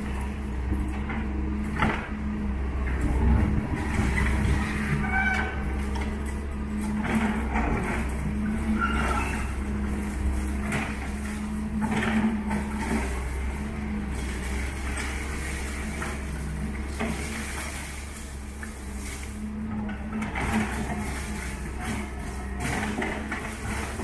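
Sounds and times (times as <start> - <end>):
excavator diesel engine running: 0.0 - 24.0
rubble crunching and clattering: 5.5 - 24.0.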